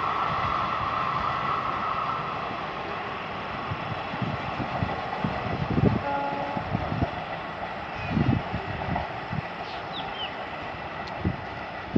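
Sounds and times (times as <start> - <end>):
train rumbling: 0.0 - 11.9
faint distant train horn: 5.9 - 6.8.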